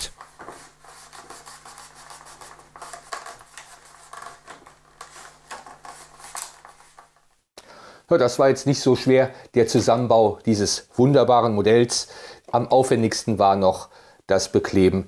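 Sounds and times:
fingers rubbing decal on foam: 0.6s - 6.2s.

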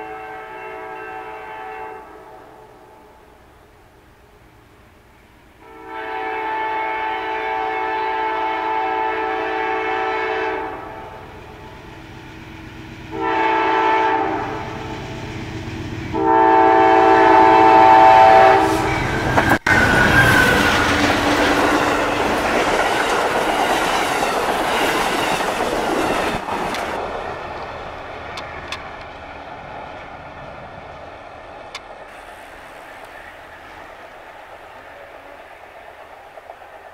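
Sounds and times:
locomotive air horn blasts: 0.0s - 3.0s, 5.6s - 11.2s, 13.1s - 15.0s, 16.1s - 20.9s
train passing with engine noise: 0.0s - 36.9s
wheels clacking over rail joints: 19.0s - 36.9s.

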